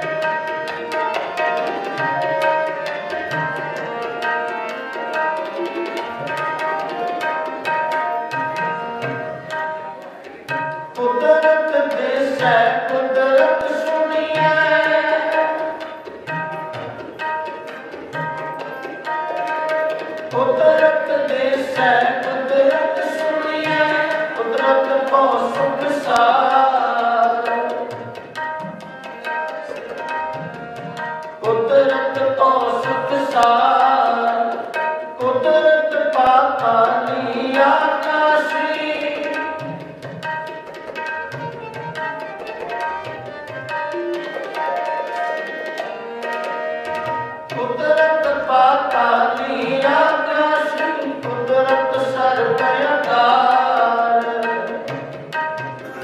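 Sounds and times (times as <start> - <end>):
harmonium chords and melody: 0.0 - 56.0
tabla rhythm: 0.0 - 56.0
man singing: 11.0 - 15.9, 20.3 - 28.0, 31.4 - 39.8, 47.5 - 55.2.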